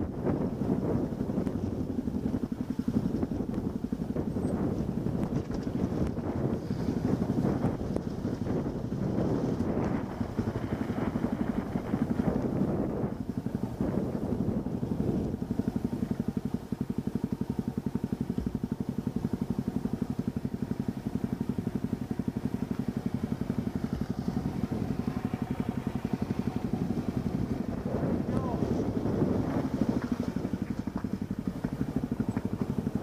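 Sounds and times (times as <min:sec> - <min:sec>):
off-road vehicle engine pulsing: 0:00.0 - 0:33.0.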